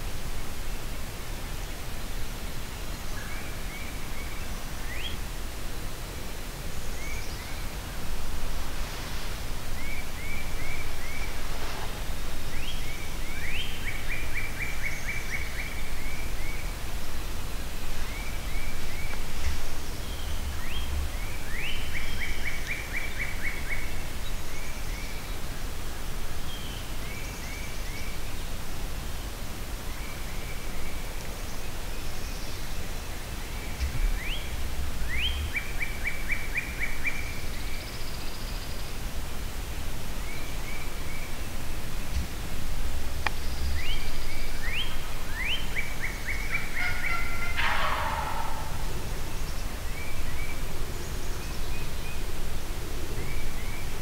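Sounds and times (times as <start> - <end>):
steady low rumble: 32.7 - 36.2, 39.0 - 54.0.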